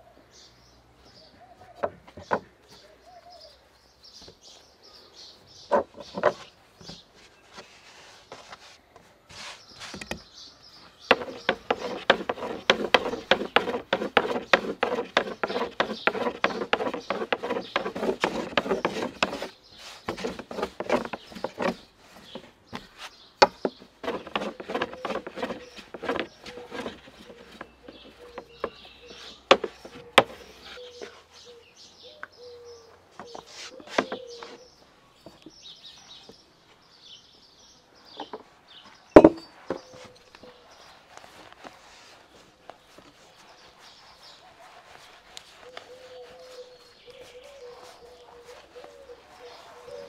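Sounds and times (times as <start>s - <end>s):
birds chirping: 0.0s - 50.0s
rolling pin on wooden board: 5.7s - 10.2s, 11.1s - 31.1s, 33.2s - 34.6s, 39.2s - 40.1s.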